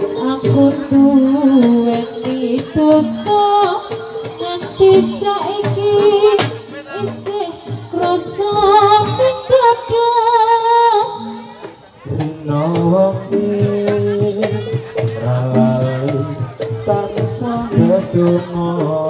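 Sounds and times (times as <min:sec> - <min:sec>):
gamelan ensemble playing: 0:00.0 - 0:10.1, 0:10.7 - 0:19.0
person singing: 0:00.0 - 0:19.0.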